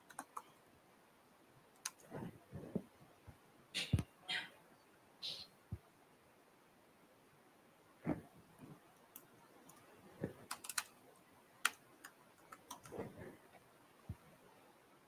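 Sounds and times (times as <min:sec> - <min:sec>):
laptop keyboard clicks: 0:00.1 - 0:00.5, 0:10.4 - 0:10.9, 0:11.6 - 0:13.0.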